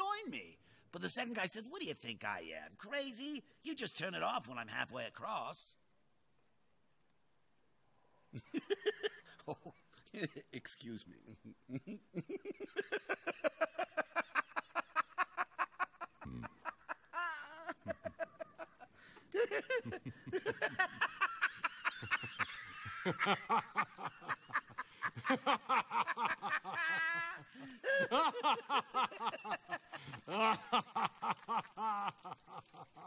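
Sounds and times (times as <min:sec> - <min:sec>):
lower laugh: 0:11.2 - 0:33.0
man laughing hard: 0:11.4 - 0:33.0.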